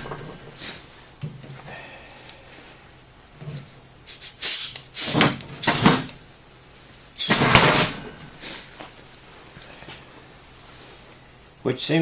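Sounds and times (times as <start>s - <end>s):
metal scissor lift scraping: 7.2s - 8.4s.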